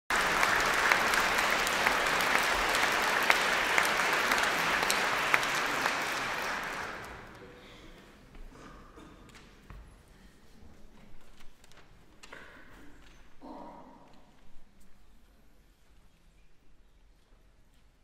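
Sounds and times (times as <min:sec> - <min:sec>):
audience applauding: 0:00.1 - 0:07.4.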